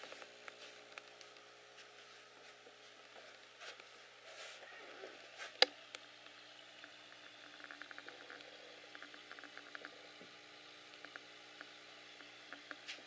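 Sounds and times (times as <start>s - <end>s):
quiet steady hum: 0.0s - 13.0s.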